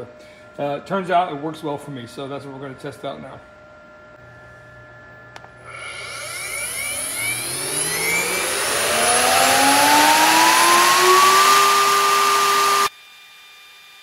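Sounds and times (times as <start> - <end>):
router spindle whine: 4.2 - 14.0.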